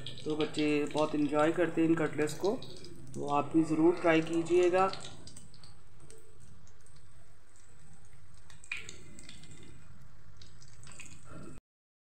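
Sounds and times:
cutlets frying in hot oil: 0:00.0 - 0:11.6.

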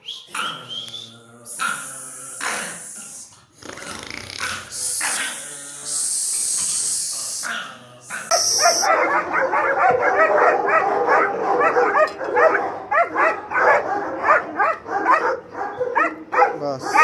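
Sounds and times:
hissy noise: 0:01.5 - 0:03.3, 0:04.0 - 0:08.9
dog barking rapidly: 0:07.4 - 0:17.0.

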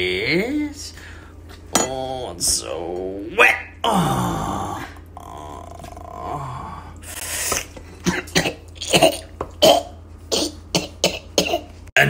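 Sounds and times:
man coughing: 0:07.6 - 0:11.7.

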